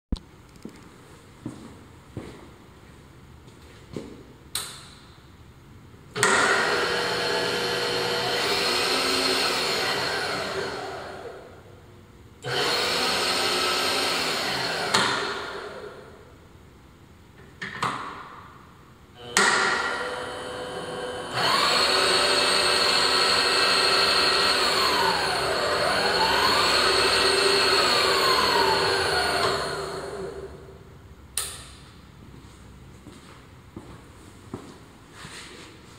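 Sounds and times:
power feed motor whine: 6.2s - 11.5s, 12.4s - 16.0s, 19.2s - 30.7s
switch clicks: 31.4s - 31.8s.

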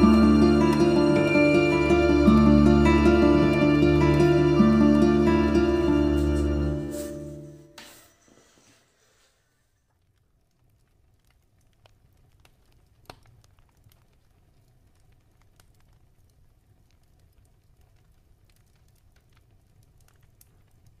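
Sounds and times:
low hum: 0.0s - 7.8s.

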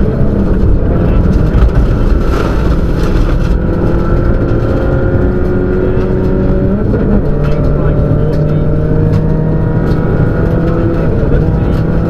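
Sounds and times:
car engine running hard: 0.0s - 12.0s
road and tyre rumble: 0.0s - 12.0s.

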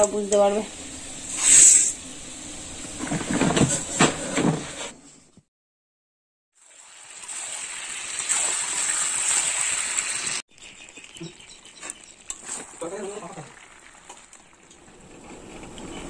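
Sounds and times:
food sizzling in hot oil: 0.0s - 3.9s, 6.5s - 14.9s.

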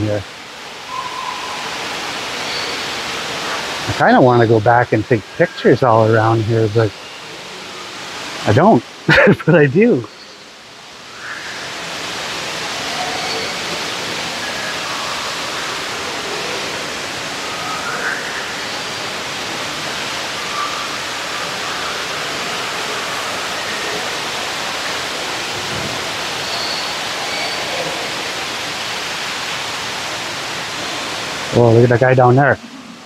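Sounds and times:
waterfall rushing: 0.0s - 33.0s
faint bird calls: 0.8s - 3.7s, 11.1s - 16.6s.

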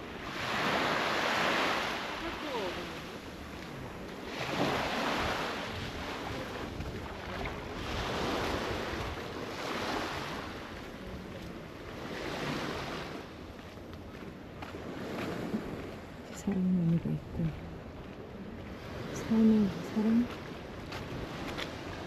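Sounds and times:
sea waves washing in: 0.0s - 22.0s
wind buffeting microphone: 2.0s - 22.0s.

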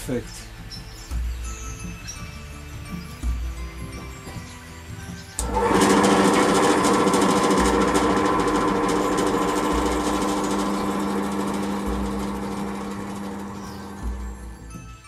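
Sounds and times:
drill press boring through plywood: 5.4s - 14.8s.

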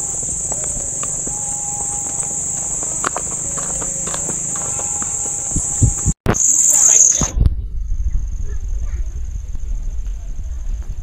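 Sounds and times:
insects chirring: 0.0s - 10.9s
low rumble: 7.2s - 11.0s.

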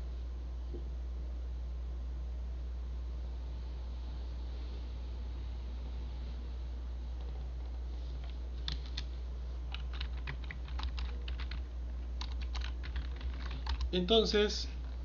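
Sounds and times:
steady low hum: 0.0s - 15.0s
keyboard typing: 7.2s - 9.1s, 9.7s - 13.9s.

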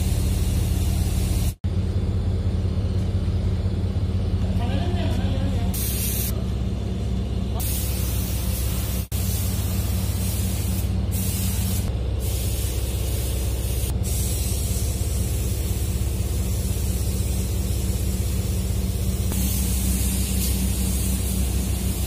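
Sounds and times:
low machine hum: 0.0s - 22.0s
loud air hiss: 5.8s - 6.3s, 7.6s - 22.0s.

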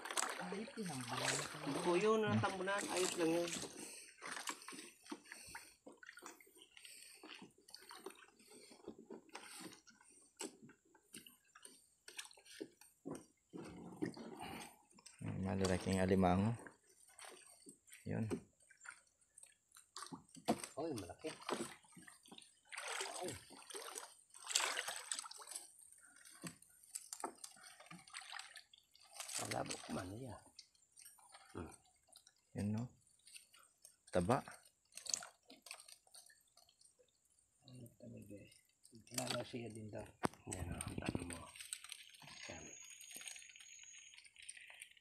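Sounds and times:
rush of water: 0.0s - 7.2s, 20.6s - 25.6s, 27.2s - 30.2s
water dripping and splashing: 0.0s - 45.0s
fishing net rustling: 20.0s - 30.0s, 40.4s - 45.0s.

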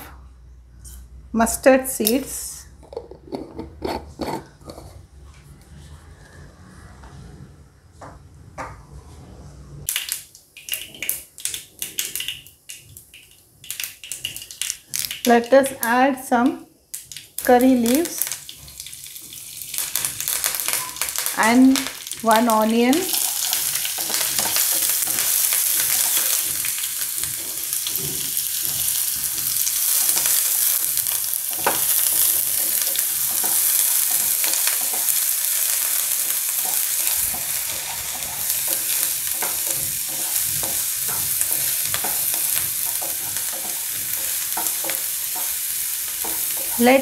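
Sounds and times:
onion sizzling in hot oil: 9.9s - 16.2s, 16.9s - 47.0s.

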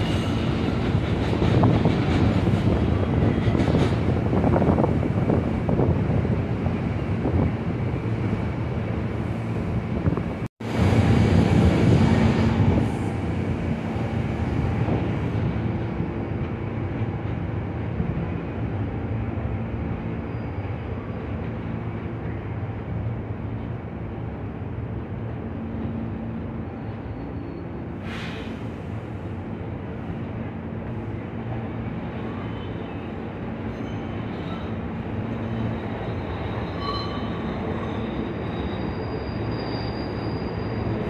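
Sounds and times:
subway train on elevated track: 0.0s - 41.0s
wind on microphone: 0.1s - 8.5s.

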